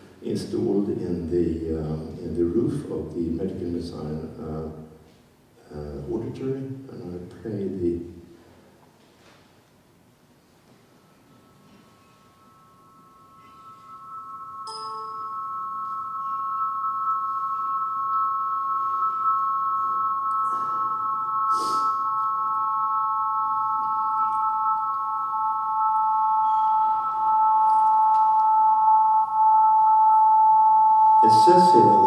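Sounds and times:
high pure tones: 0:10.9 - 0:32.0
lower pure tone: 0:10.9 - 0:32.0.

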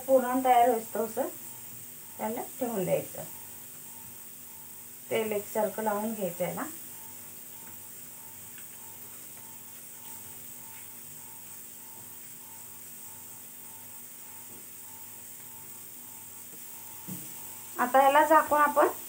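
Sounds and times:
electrical hum and hiss: 0:00.0 - 0:19.0
faint pulsing tone: 0:00.0 - 0:19.0.

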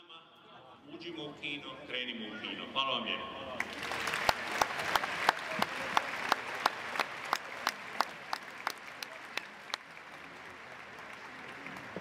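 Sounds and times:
crowd applauding: 0:03.6 - 0:12.0
nearby person clapping: 0:03.6 - 0:12.0.

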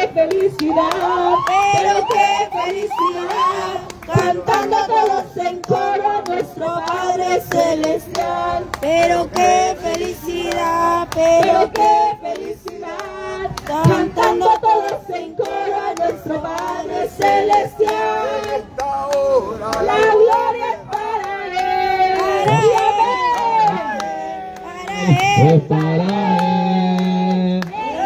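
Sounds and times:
woman singing: 0:00.0 - 0:16.5
hands clapping: 0:00.1 - 0:28.0.

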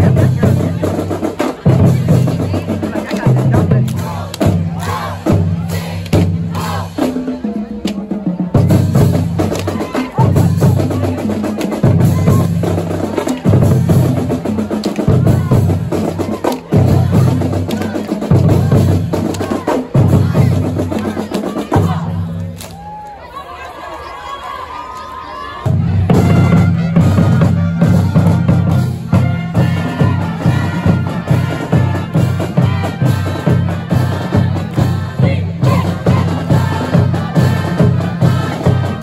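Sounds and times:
bass and snare drums beating: 0:00.0 - 0:22.4, 0:25.7 - 0:39.0
low brass riff: 0:26.1 - 0:33.9.

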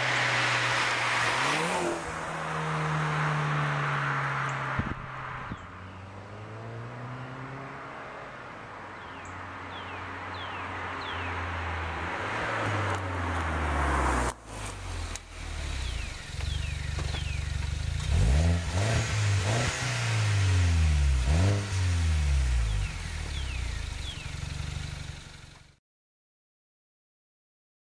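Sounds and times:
car engine idling and revving: 0:00.0 - 0:25.8
birds chirping: 0:08.9 - 0:11.6, 0:15.6 - 0:19.0, 0:22.5 - 0:25.2.

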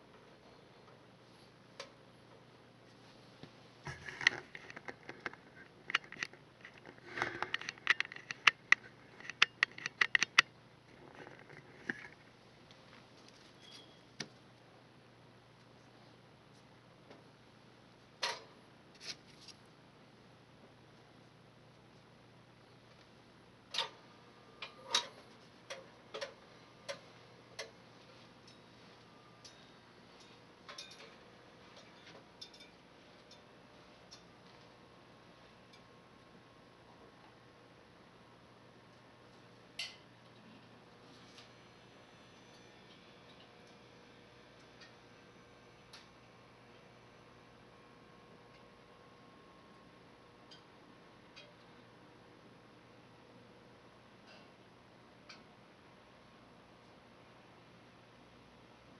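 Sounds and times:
sharp irregular clicks and taps: 0:04.2 - 0:10.5.

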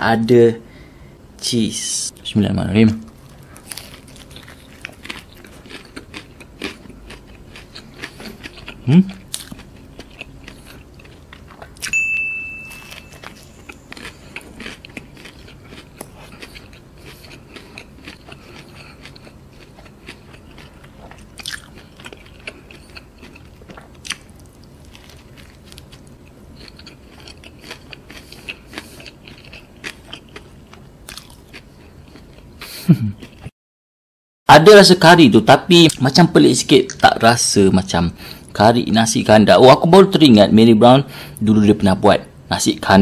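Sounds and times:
person chewing and crunching: 0:03.1 - 0:12.0, 0:12.6 - 0:33.5
short high ringing tone: 0:11.9 - 0:13.9.

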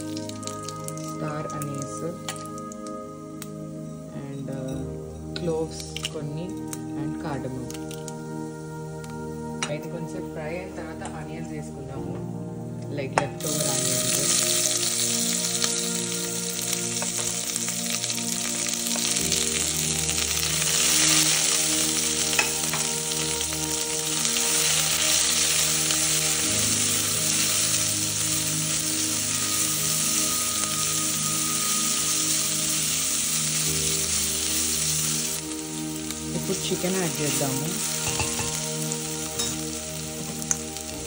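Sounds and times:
onions sizzling in hot oil: 0:00.0 - 0:41.0.

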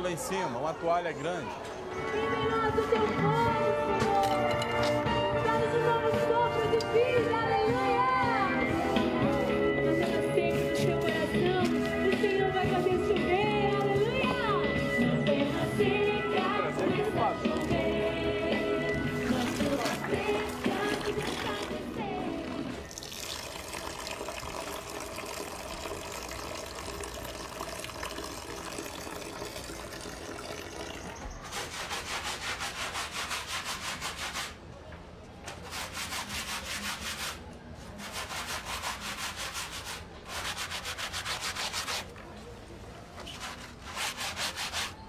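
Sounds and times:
clothes scrubbed on washboard: 0:31.4 - 0:34.6, 0:43.2 - 0:45.0.

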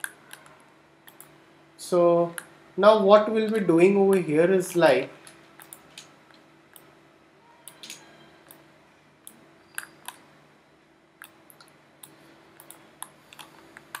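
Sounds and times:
computer mouse clicks: 0:00.0 - 0:01.4, 0:05.6 - 0:06.9, 0:07.7 - 0:08.6, 0:09.2 - 0:10.2, 0:11.2 - 0:14.0
faint steady hum: 0:00.0 - 0:14.0.

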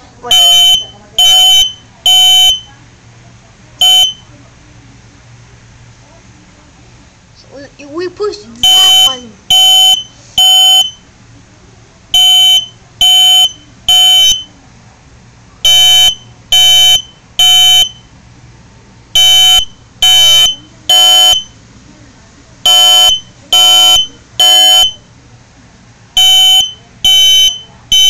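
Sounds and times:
smoke detector beeping: 0:00.3 - 0:02.7, 0:03.8 - 0:04.3, 0:08.6 - 0:11.1, 0:12.2 - 0:14.6, 0:15.6 - 0:18.2, 0:19.2 - 0:21.6, 0:22.7 - 0:25.1, 0:26.2 - 0:28.0.

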